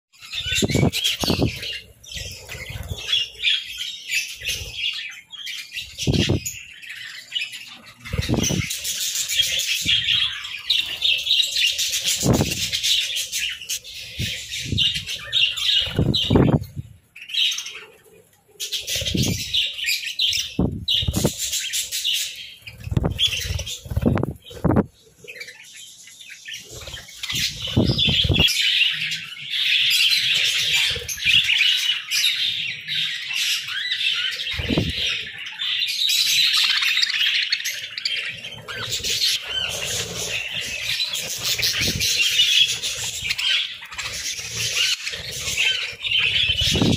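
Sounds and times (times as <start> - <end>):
budgerigars chirping: 0.2 - 18.0, 18.6 - 46.9
wing flapping: 10.8 - 13.2, 14.1 - 16.8, 20.6 - 21.8, 22.7 - 25.0, 34.5 - 35.1, 38.6 - 46.9.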